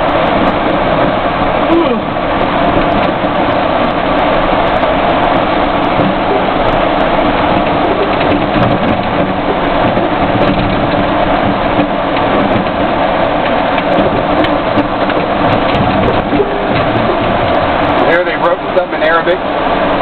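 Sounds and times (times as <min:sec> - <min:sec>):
vehicle engine and road noise: 0:00.0 - 0:20.0
small rattles and clicks: 0:05.8 - 0:19.1.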